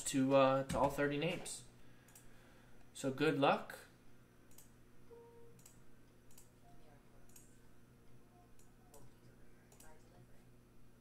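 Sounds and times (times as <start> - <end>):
computer mouse clicking: 4.5 - 4.7, 5.6 - 6.5, 7.2 - 7.6, 8.6 - 10.0.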